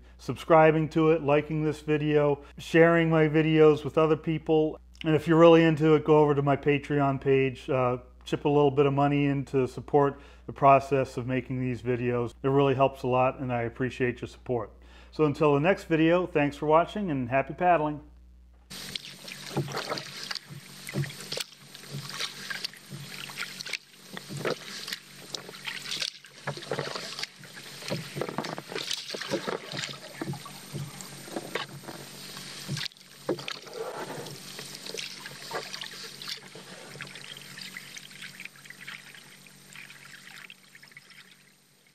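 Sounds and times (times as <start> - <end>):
paddle splashing in water: 18.7 - 41.2
water dripping off paddle: 18.7 - 41.4.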